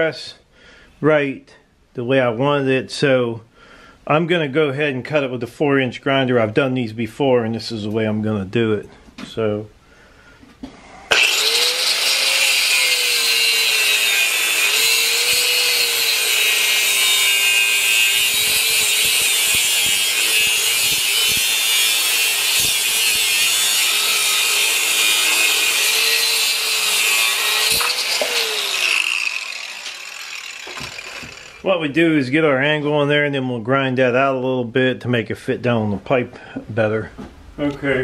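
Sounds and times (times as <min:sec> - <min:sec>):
angle grinder cutting metal: 0:11.1 - 0:31.7.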